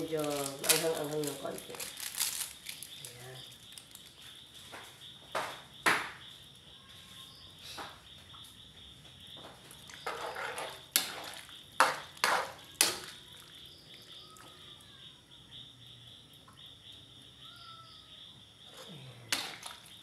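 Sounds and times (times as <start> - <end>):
spatula scraping: 9.9 - 13.1.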